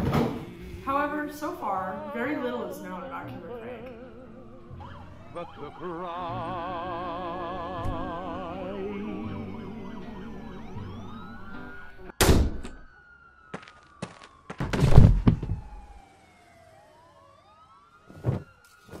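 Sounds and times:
police sirens wailing: 0.5 - 19.0
heavy thuds: 14.0 - 16.0, 18.1 - 19.0.

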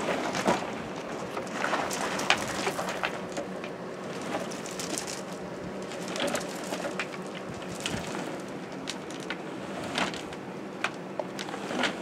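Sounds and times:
low steady background noise: 0.0 - 12.0
wires scraping in conduit: 4.0 - 10.4, 11.4 - 12.0.

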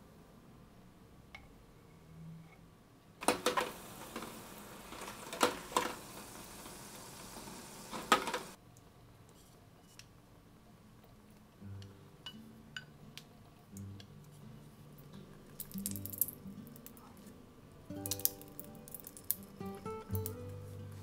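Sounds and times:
steady hiss: 3.2 - 8.6.

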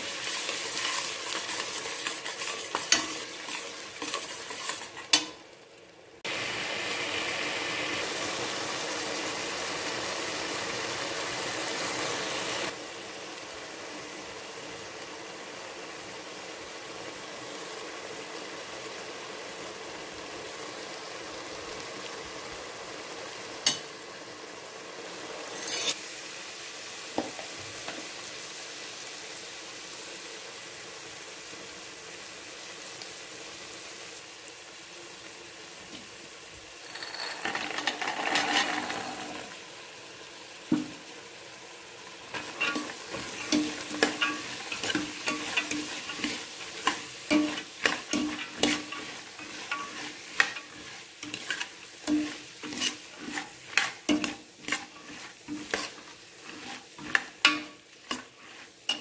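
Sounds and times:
masala sizzling in a pot: 0.0 - 59.0
steel ladle scraping a pot: 0.1 - 5.4, 25.5 - 26.0, 36.8 - 39.5, 42.3 - 59.0.

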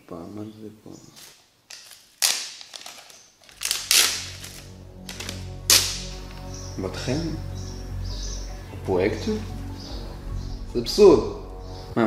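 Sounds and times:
notebook pages turning: 1.2 - 6.0
background music: 3.5 - 12.0.

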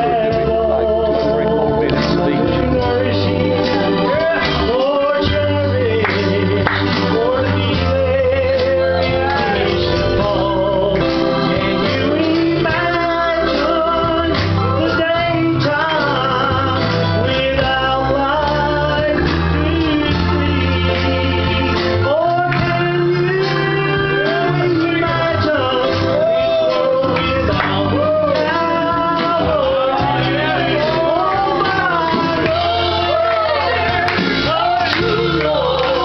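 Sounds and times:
amplified accompaniment with bass notes: 0.0 - 36.0
man and woman singing gospel: 0.0 - 36.0.

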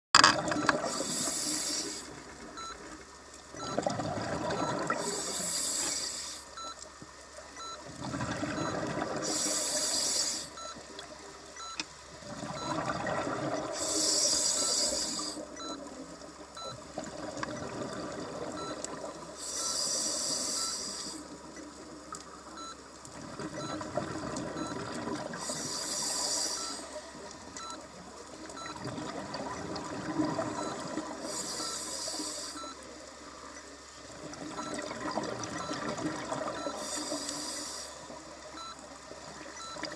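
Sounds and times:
regulator inhale hiss: 0.9 - 2.2, 5.0 - 6.6, 9.2 - 10.6, 13.7 - 15.5, 19.4 - 21.4, 25.4 - 27.0, 31.2 - 32.6, 36.7 - 38.2
exhaled bubbles burbling: 3.6 - 5.1, 7.8 - 9.2, 12.2 - 13.8, 16.8 - 19.1, 23.1 - 25.5, 28.6 - 31.2, 34.1 - 36.8.

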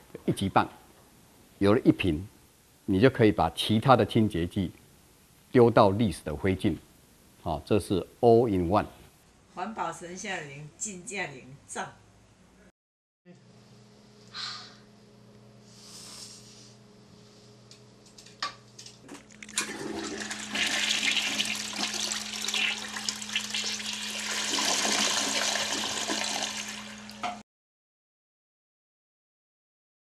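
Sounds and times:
toilet flushing: 19.5 - 27.4.

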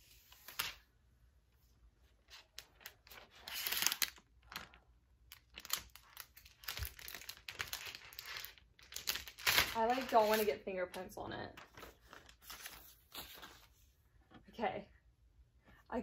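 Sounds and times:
packaging paper rustling: 2.3 - 10.6, 11.5 - 13.8.

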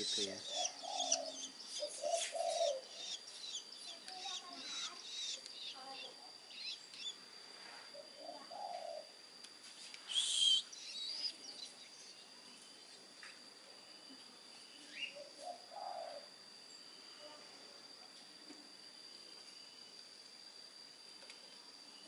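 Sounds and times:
nestlings chirping: 0.0 - 7.2, 10.0 - 12.2.

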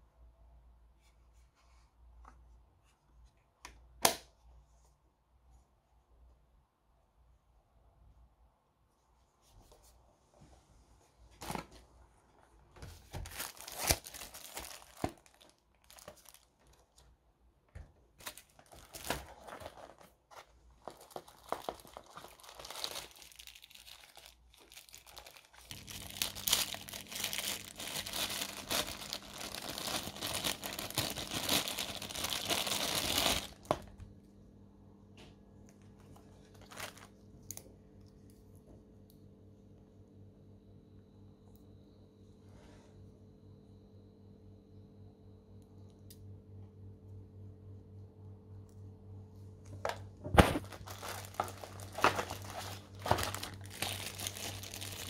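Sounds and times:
plastic bags crinkling: 13.1 - 17.0, 18.2 - 33.9, 36.4 - 37.2, 49.7 - 55.0.

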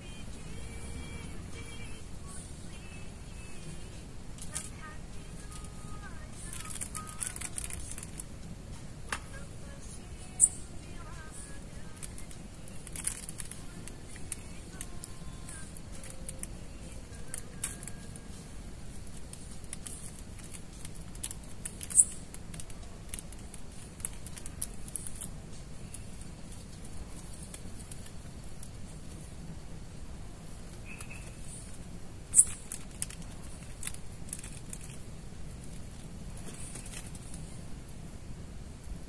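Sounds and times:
low steady rumble: 0.0 - 39.0.

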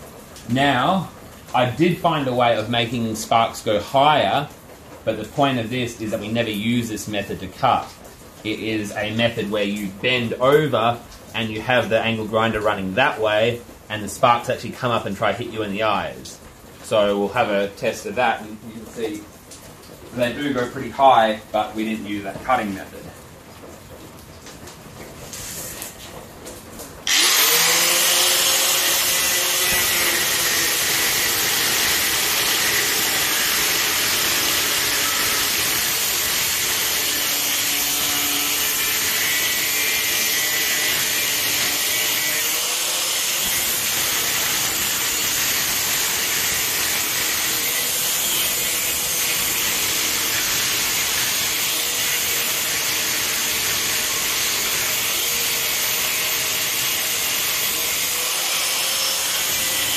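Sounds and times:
angle grinder cutting metal: 27.1 - 59.9.

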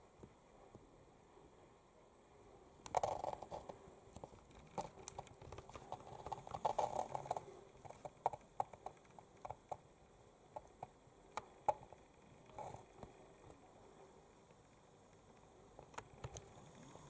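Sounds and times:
model train clicking and rattling: 2.9 - 10.9.

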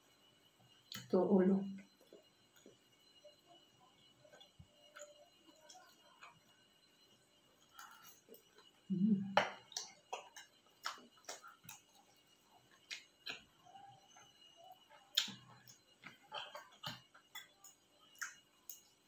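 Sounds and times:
chewing crunchy fried shrimp: 9.4 - 19.0.

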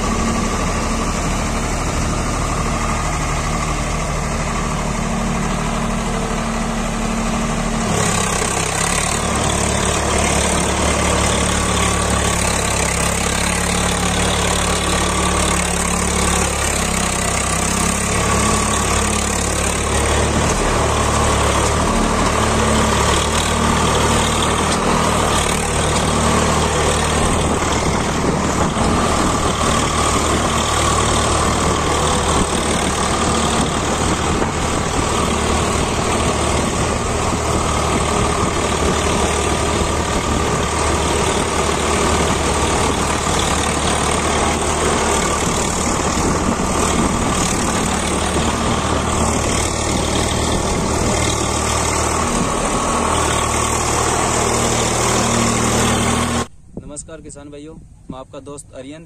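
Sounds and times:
tractor diesel engine under load: 0.0 - 57.5.

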